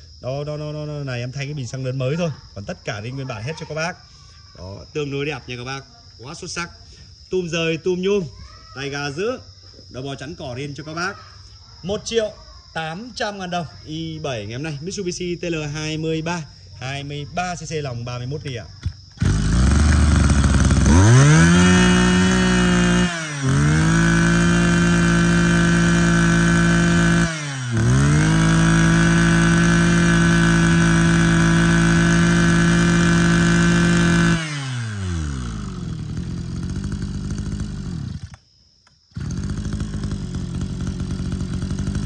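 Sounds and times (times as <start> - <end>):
brush cutter engine revving: 18.8 - 38.5, 39.1 - 42.0.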